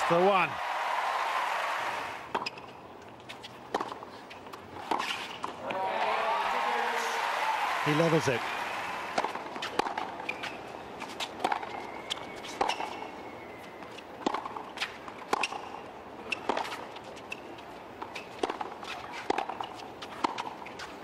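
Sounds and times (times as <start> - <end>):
tennis ball bouncing: 2.3 - 7.3, 9.1 - 11.8, 13.9 - 15.7, 16.3 - 17.4, 18.0 - 20.9.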